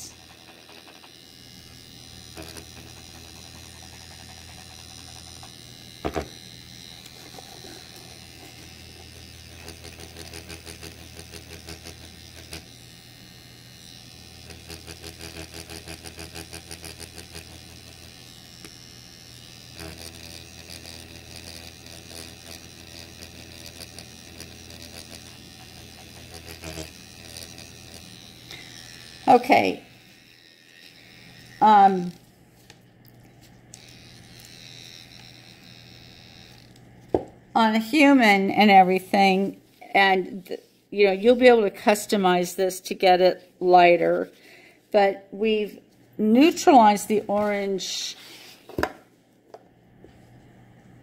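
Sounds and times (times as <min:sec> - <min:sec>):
faint pulsing: 0:00.0 - 0:32.3
makeup pen machine humming: 0:00.0 - 0:51.0.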